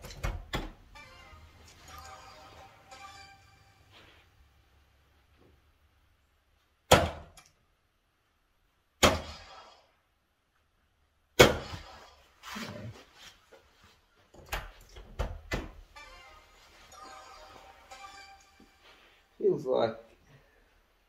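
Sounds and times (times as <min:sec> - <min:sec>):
darts thudding into dartboard: 0:06.9 - 0:07.4.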